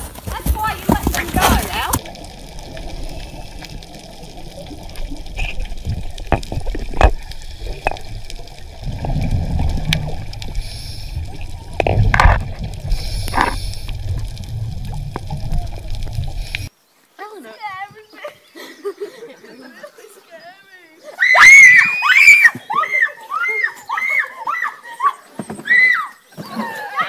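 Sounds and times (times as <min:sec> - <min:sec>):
gurgling water gushes: 0:00.6 - 0:16.7
sharp underwater clicks: 0:01.1 - 0:16.7
muffled underwater rumble: 0:01.8 - 0:16.7.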